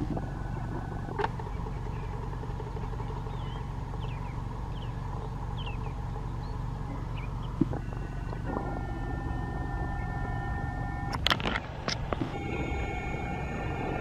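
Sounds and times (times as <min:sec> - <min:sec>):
distant traffic rumble: 0:00.0 - 0:14.0
small birds chirping: 0:00.1 - 0:11.2.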